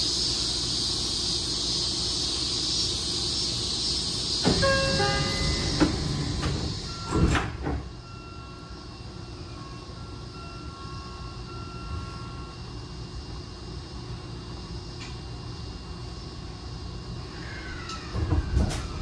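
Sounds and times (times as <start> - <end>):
high hiss from outside: 0.0 - 19.0
sliding doors closing with thump: 4.4 - 8.0, 17.8 - 19.0
door chime: 4.4 - 8.8.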